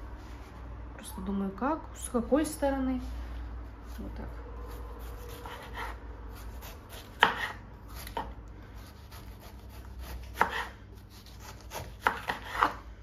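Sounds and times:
knife slicing cabbage: 4.6s - 12.8s.

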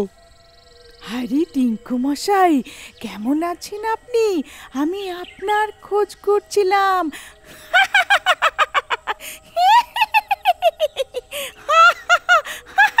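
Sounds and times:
woman cackling laugh: 7.5s - 13.0s.

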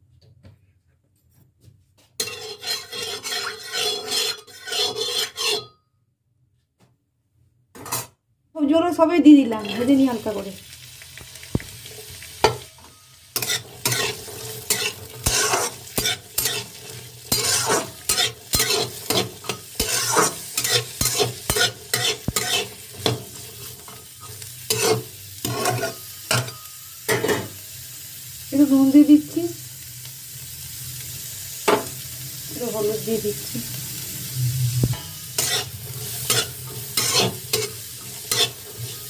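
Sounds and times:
spatula scraping pan: 2.1s - 5.8s, 9.4s - 10.3s, 11.5s - 27.6s, 34.9s - 39.0s
vegetables sizzling in oil: 2.2s - 5.4s, 8.6s - 39.0s.

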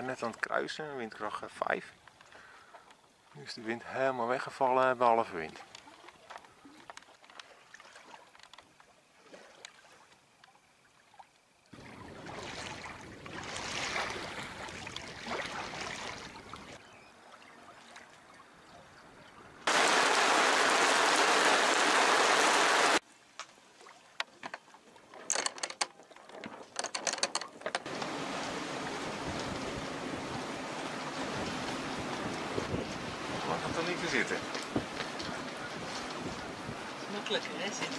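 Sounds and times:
wind: 0.0s - 37.9s
water noise: 4.4s - 37.9s
heavy rain hiss: 19.7s - 23.0s, 27.9s - 35.2s
clicks and knocks: 25.2s - 27.9s.

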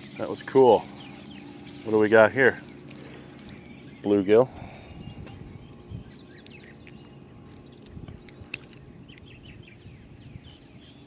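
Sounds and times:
low rumble: 0.0s - 11.0s
small birds chirping: 0.0s - 11.0s.

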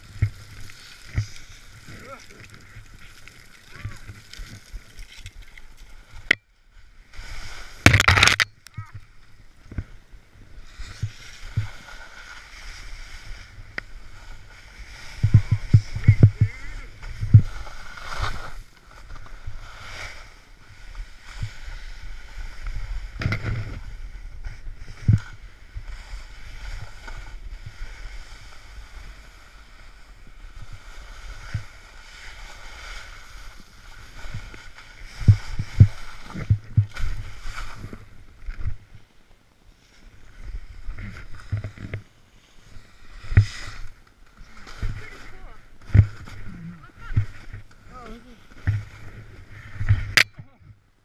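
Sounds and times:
snowboard scraping through snow: 0.0s - 6.2s, 6.8s - 7.9s, 9.1s - 50.2s
snowboard thumping on bumps: 15.1s - 18.6s, 44.5s - 50.6s.

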